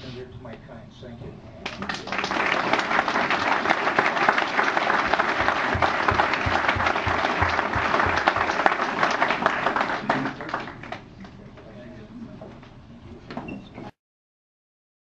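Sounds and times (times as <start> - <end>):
audience applauding: 1.6 - 11.4.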